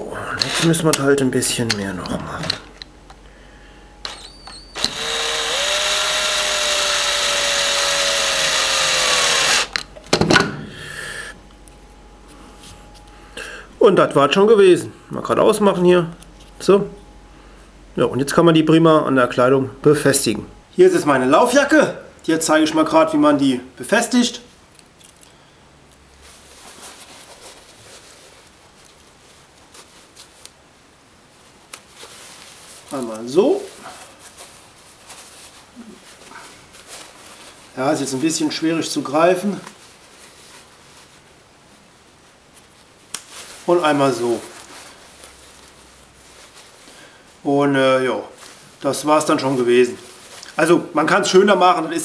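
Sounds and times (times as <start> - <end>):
power drill whining: 0.4 - 0.9, 4.0 - 9.8
sharp clicks: 4.0 - 5.0
nylon jacket rustling: 26.2 - 30.4, 31.2 - 47.5.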